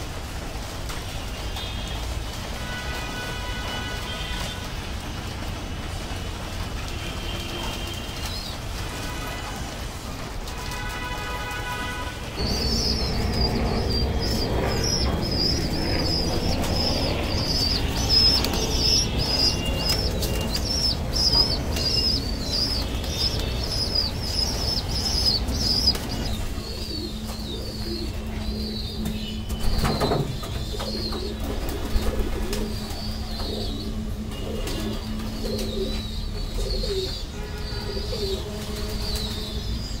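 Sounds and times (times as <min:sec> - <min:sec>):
wings flapping: 0:00.0 - 0:36.0
low hum: 0:12.3 - 0:28.7
pigeons cooing: 0:12.3 - 0:39.8.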